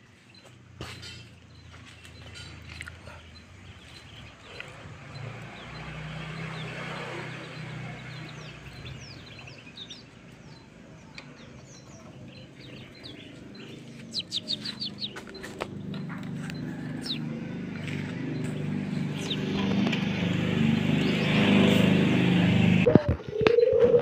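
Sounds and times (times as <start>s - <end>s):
bird chirps sliding downward: 3.8s - 22.4s.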